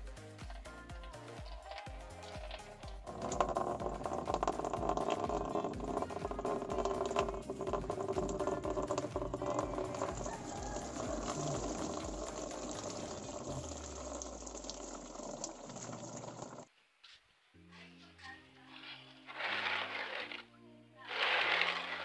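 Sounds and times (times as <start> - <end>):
water draining into plastic basin: 3.1 - 16.7.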